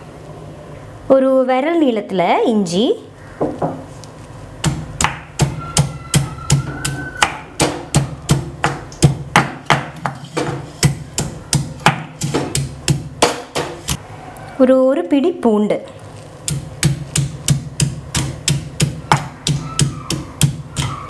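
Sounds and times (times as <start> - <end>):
pestle thudding in stone mortar: 4.6 - 14.0, 16.4 - 21.0.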